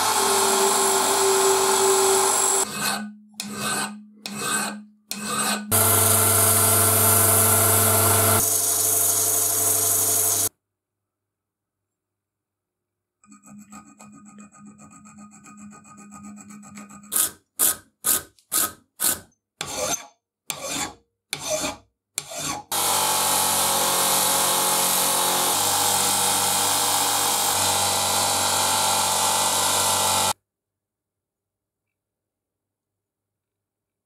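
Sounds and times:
bench grinder grinding metal: 0:00.0 - 0:10.5, 0:22.2 - 0:30.4
file rasping on steel thread: 0:00.6 - 0:06.0, 0:13.2 - 0:22.8.

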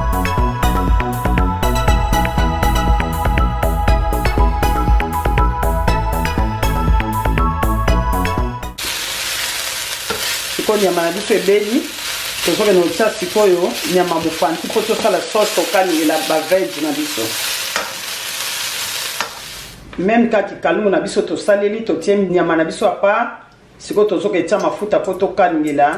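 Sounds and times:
spatula scraping a pan: 0:08.8 - 0:12.6, 0:13.3 - 0:19.8
meat sizzling in a wok: 0:08.8 - 0:19.8.

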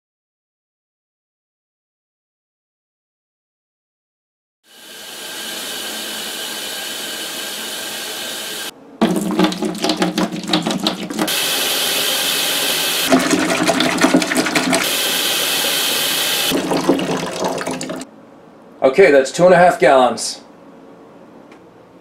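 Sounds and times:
faucet running into plastic jug: 0:09.0 - 0:18.1
water pouring into ice chest: 0:09.0 - 0:18.1.

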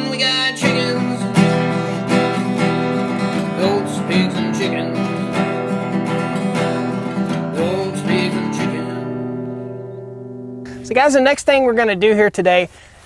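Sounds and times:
song with strummed acoustic guitar: 0:00.0 - 0:11.8.

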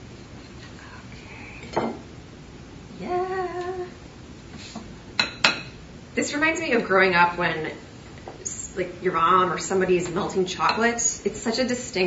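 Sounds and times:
woman humming: 0:02.9 - 0:04.0.

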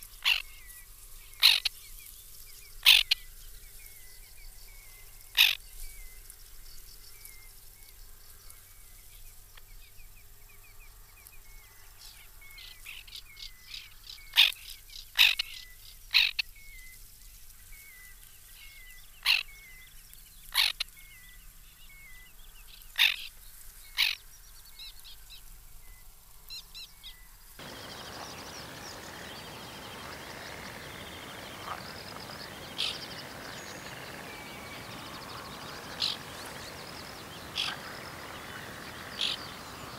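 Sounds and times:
terns calling: 0:00.0 - 0:06.3, 0:26.5 - 0:39.9
faint repeated chirping: 0:27.6 - 0:39.9.

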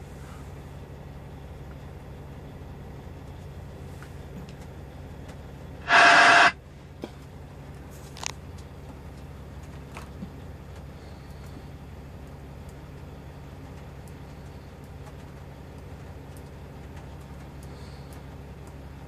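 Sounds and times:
radio static burst: 0:05.9 - 0:06.6.

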